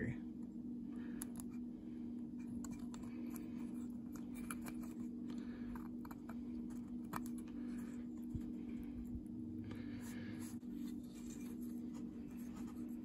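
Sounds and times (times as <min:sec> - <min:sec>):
steady low hum: 0:00.0 - 0:13.0
fingers clicking and rustling: 0:02.4 - 0:07.6.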